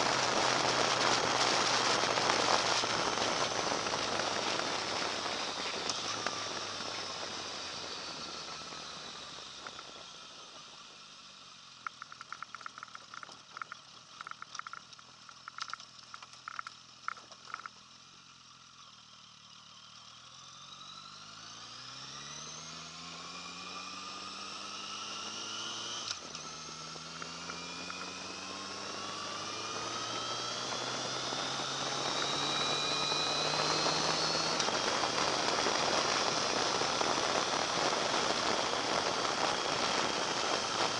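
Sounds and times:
wind noise: 0.0s - 8.2s, 32.0s - 40.9s
motorcycle engine revving: 0.0s - 17.7s, 18.9s - 40.9s.

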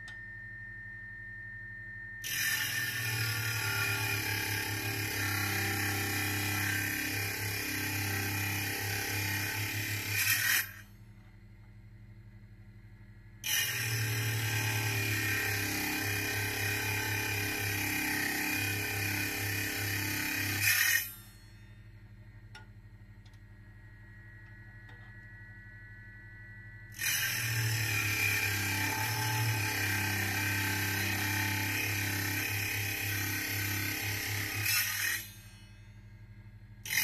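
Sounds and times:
faint high whine: 0.0s - 3.6s, 21.0s - 28.0s.

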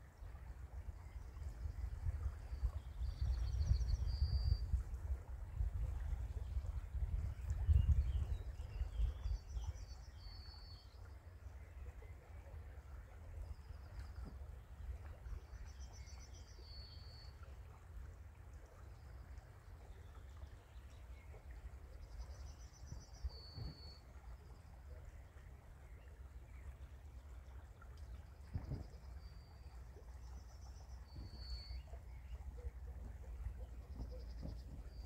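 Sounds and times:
songbird singing: 0.0s - 35.0s.

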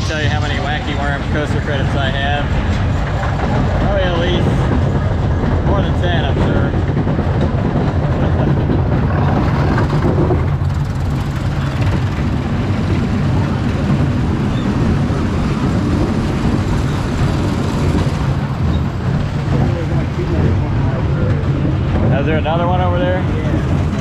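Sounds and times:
roller coaster rumbling on track: 0.0s - 24.0s.

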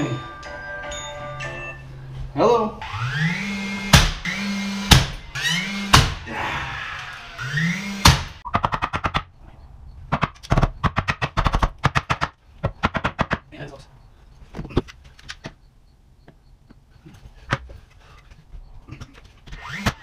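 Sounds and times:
nailer motor whining: 2.8s - 8.4s, 19.2s - 20.0s
nail gun bangs: 3.9s - 6.2s.

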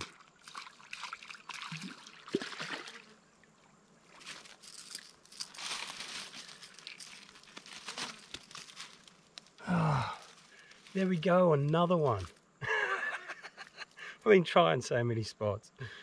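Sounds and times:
fish splashing and thrashing: 0.0s - 3.0s
water sloshing and dripping: 0.0s - 3.0s.

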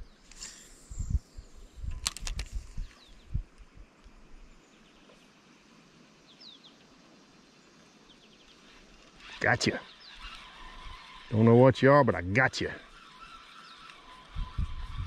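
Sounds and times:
fishing reel clicks and knocks: 1.9s - 2.6s
faint bird chirps: 4.4s - 11.4s, 12.8s - 15.0s.

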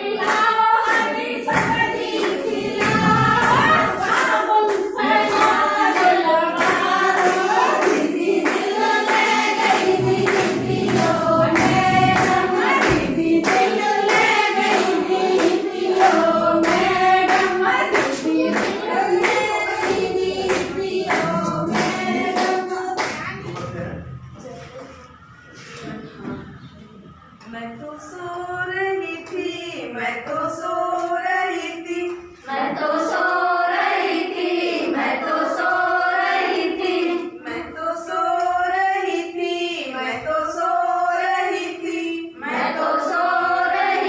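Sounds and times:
women singing together: 0.0s - 23.5s, 27.4s - 44.0s
rhythmic hand clapping: 0.0s - 24.0s.

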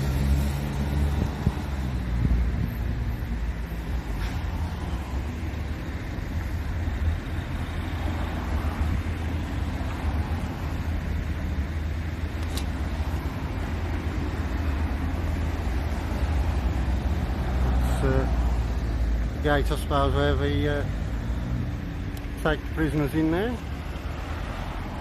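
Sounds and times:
road traffic rumble: 0.0s - 25.0s
sharp click: 12.4s - 12.7s.

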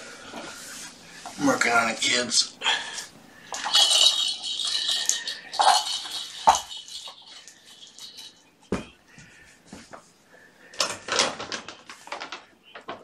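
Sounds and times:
rustling and light rattling: 3.5s - 10.2s.

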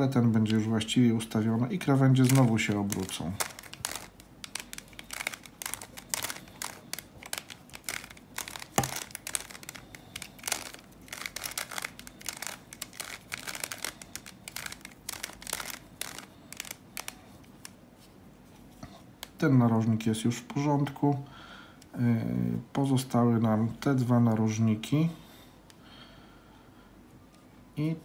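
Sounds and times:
plastic puzzle cube clicking: 2.2s - 17.8s.

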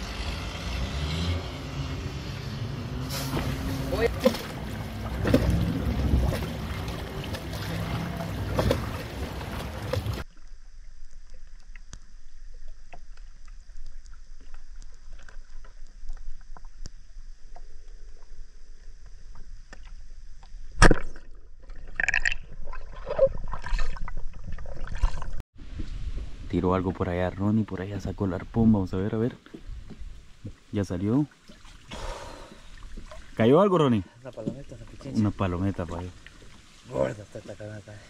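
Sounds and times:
water lapping at shore: 1.7s - 18.4s, 27.1s - 38.0s
short gurgling sounds: 20.8s - 25.4s.

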